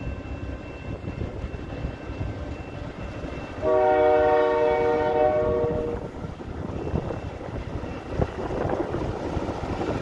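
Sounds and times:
locomotive air horn chord: 3.6s - 6.1s.

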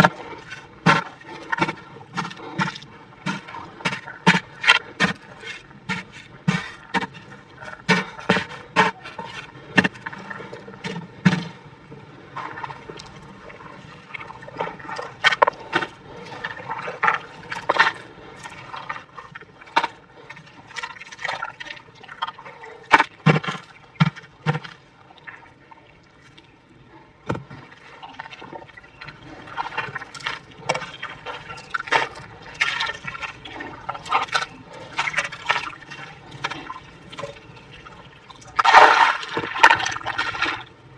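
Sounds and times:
wet mud squelching: 38.6s - 40.6s.

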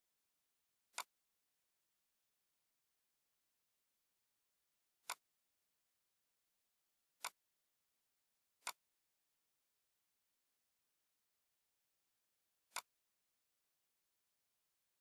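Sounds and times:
computer mouse clicks: 0.9s - 1.2s, 5.0s - 5.3s, 7.2s - 7.4s, 8.6s - 8.9s, 12.7s - 13.0s.

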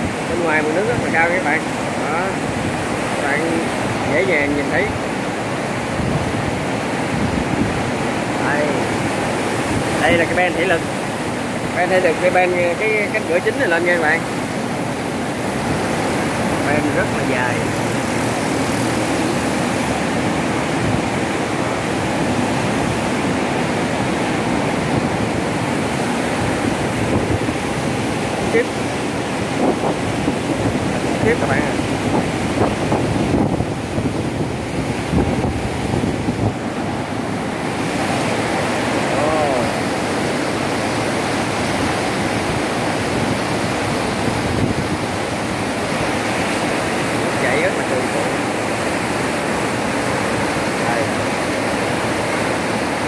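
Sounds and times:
water rushing through sluice gate: 0.0s - 53.0s.

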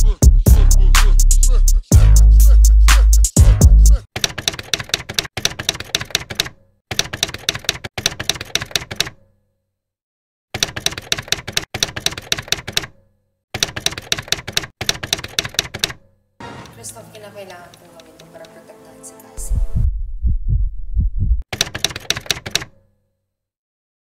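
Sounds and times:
typewriter key clacks: 4.2s - 9.2s, 10.6s - 13.0s, 13.6s - 16.0s, 21.5s - 22.8s
deep bass note: 19.4s - 21.4s.

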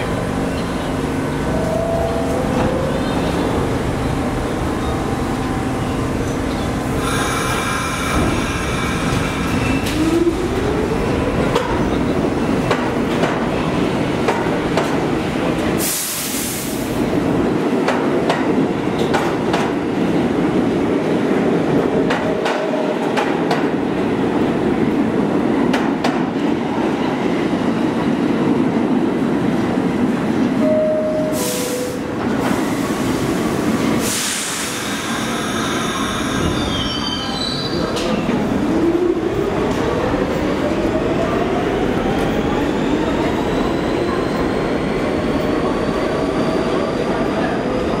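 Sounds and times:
subway train on rails: 0.0s - 48.0s
two-note door chime: 30.6s - 32.0s
train wheel squeal: 34.9s - 38.2s.

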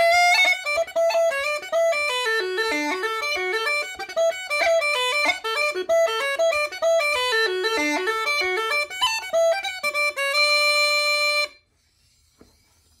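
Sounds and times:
uilleann pipes playing a reel: 0.0s - 11.6s.

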